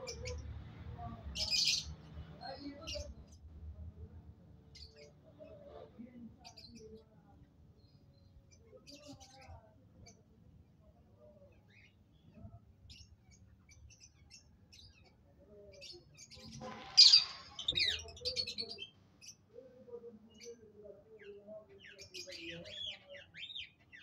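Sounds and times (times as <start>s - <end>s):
birds chirping: 11.7s - 19.5s
loud harsh parrot squawk: 16.6s - 18.0s.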